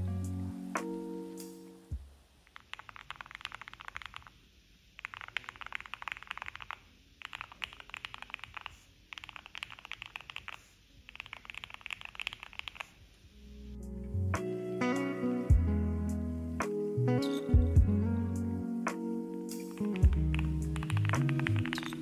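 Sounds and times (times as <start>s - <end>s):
background music: 0.0s - 2.0s, 13.4s - 22.0s
mechanical keyboard typing: 2.5s - 4.4s, 5.0s - 13.0s, 19.6s - 22.0s.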